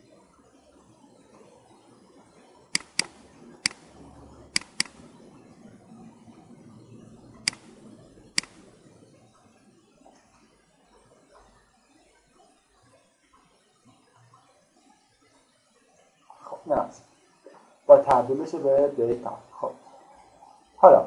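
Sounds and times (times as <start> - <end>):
faint room noise: 0.0 - 21.0
computer mouse clicks: 2.7 - 5.2, 7.4 - 7.8, 8.4 - 8.7.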